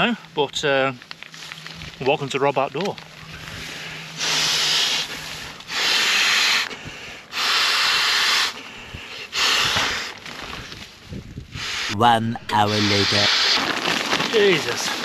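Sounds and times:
quiet breaths: 3.2 - 10.8.

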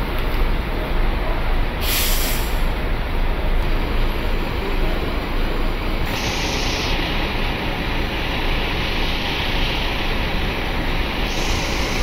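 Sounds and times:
coach bus idling: 0.0 - 12.0
high hiss: 6.1 - 12.0.

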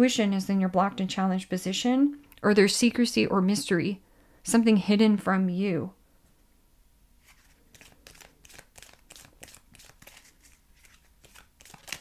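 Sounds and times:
cards being shuffled: 7.2 - 12.0.

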